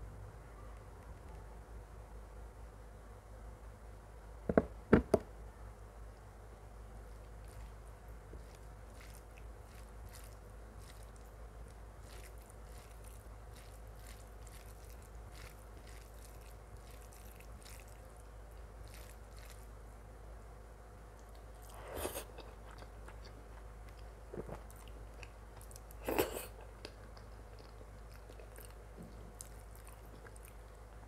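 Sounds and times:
soft wet chewing: 0:06.9 - 0:19.9, 0:21.0 - 0:31.0.

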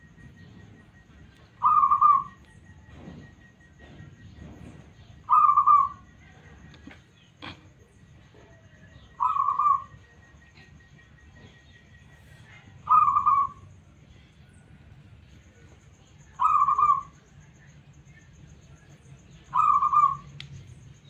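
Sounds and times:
dove cooing: 0:01.2 - 0:03.2, 0:03.8 - 0:07.8, 0:08.4 - 0:10.8, 0:12.7 - 0:13.7, 0:16.4 - 0:17.2, 0:19.4 - 0:20.3.

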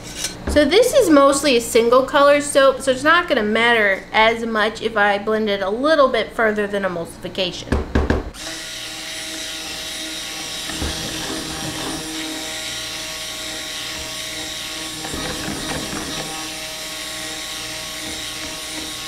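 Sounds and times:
stick blender motor whine: 0:08.4 - 0:19.0.

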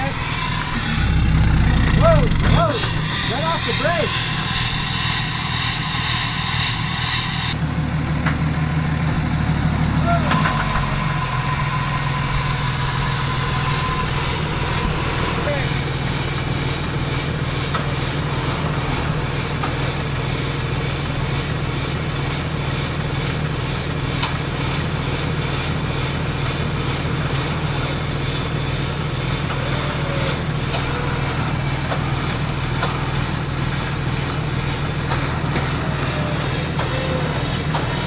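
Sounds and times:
truck engine droning: 0:00.0 - 0:38.0.

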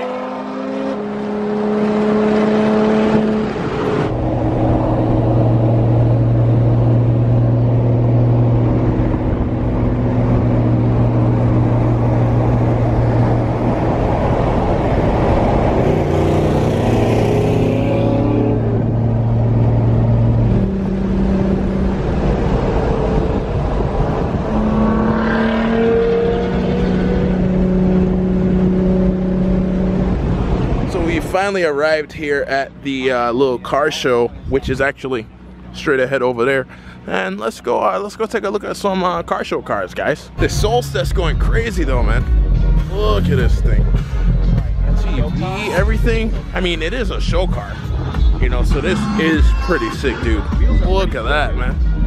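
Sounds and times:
car engine and road noise: 0:00.0 - 0:52.0.

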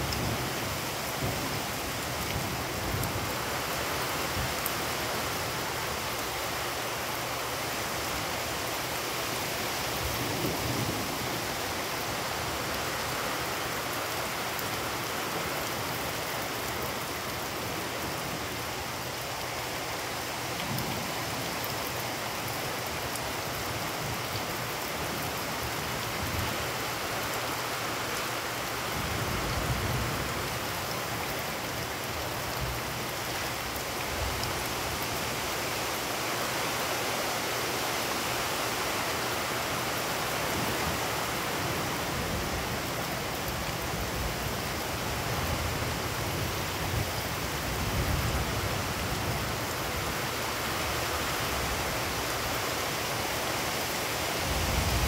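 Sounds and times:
heavy rain pouring on puddles: 0:00.0 - 0:55.0.

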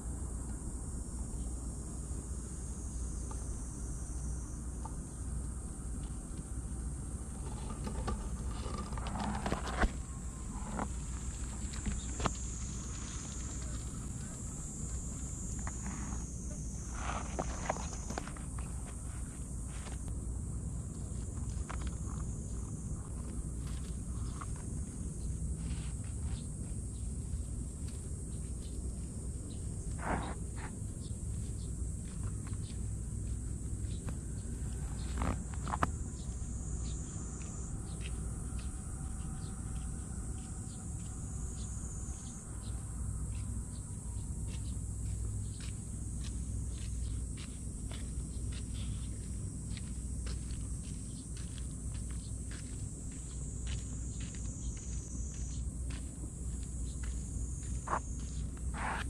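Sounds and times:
high-pitched insect chorus: 0:00.0 - 0:59.0
rustle: 0:00.0 - 0:59.0
faint scuffs: 0:44.5 - 0:59.0.

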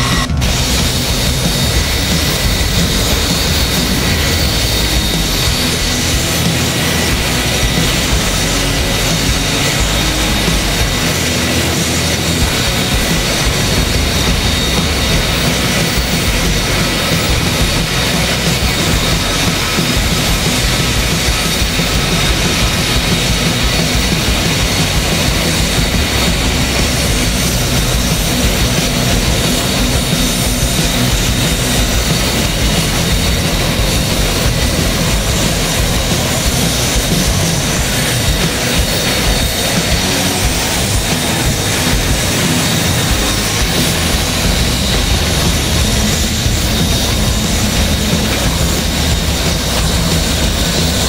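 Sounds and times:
jet engine turbine whine: 0:00.0 - 0:51.0.

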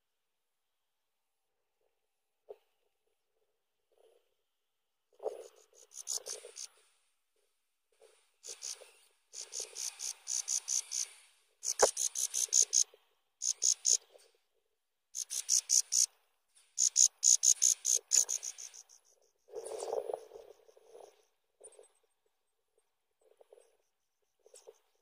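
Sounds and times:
nestlings chirping: 0:08.4 - 0:12.8, 0:13.4 - 0:14.0, 0:15.2 - 0:16.1.

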